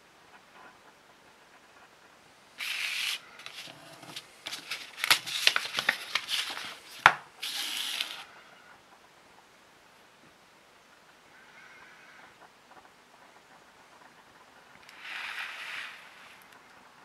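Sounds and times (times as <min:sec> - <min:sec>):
paper leaflet rustling: 0:02.6 - 0:08.3.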